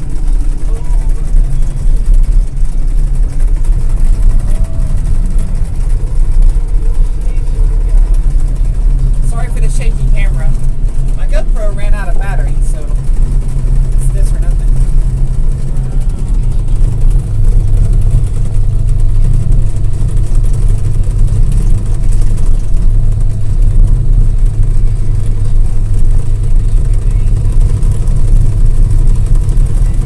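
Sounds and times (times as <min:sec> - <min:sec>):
diesel engine drone from cab: 0:00.0 - 0:30.0.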